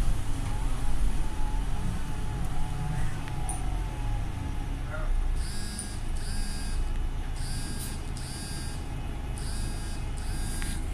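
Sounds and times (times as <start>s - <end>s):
bus engine and road rumble: 0.0s - 10.9s
high electronic beeps: 7.4s - 8.8s, 9.4s - 10.8s.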